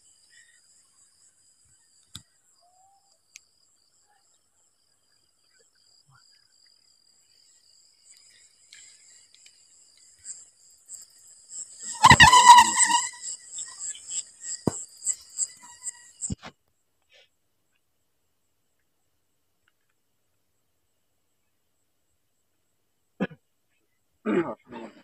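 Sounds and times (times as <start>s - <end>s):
crickets trilling: 0.0s - 16.5s
faint clicks: 8.1s - 10.2s
loud high-pitched tone: 11.8s - 13.3s.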